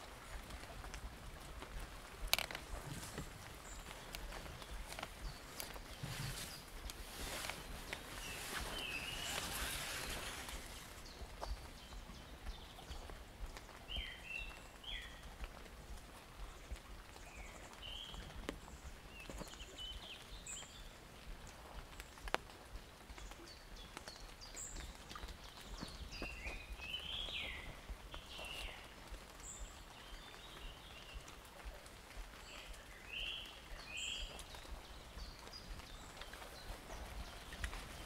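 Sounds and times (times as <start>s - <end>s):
footsteps on forest floor: 0.0s - 20.9s, 24.8s - 38.0s
forest birds chirping: 0.0s - 38.0s
twig snapping: 2.3s - 3.3s.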